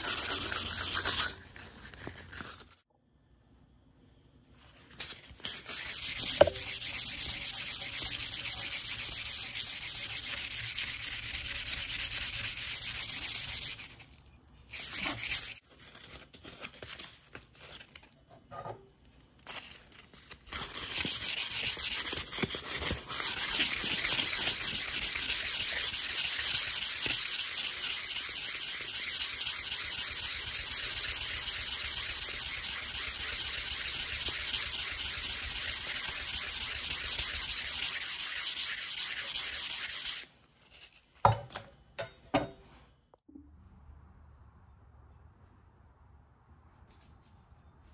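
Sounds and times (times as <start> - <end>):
sandpaper rubbing on steel blade: 0.0 - 1.5, 5.4 - 14.0, 14.7 - 15.6, 20.7 - 41.0.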